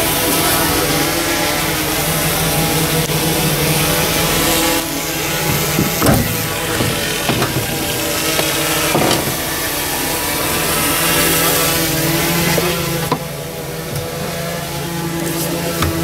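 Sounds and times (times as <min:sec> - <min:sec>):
vehicle engine running: 0:00.0 - 0:16.0
truck door handle click: 0:05.5 - 0:09.4.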